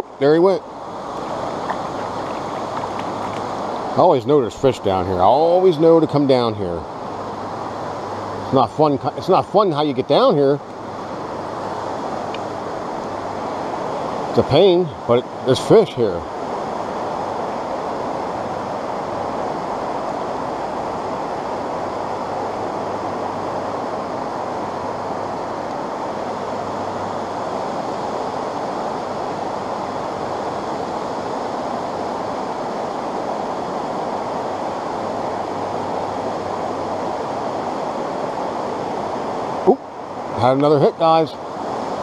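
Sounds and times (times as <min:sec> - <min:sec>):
brook rushing over rocks: 0:01.1 - 0:04.5.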